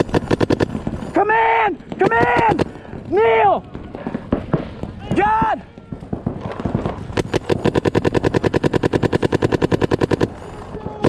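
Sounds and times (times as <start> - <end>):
paintball marker firing rapidly: 0.0 - 1.1, 1.8 - 11.0.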